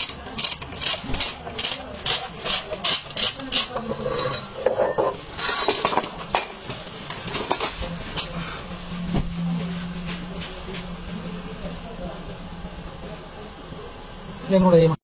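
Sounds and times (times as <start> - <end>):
handling noise: 5.1 - 8.2.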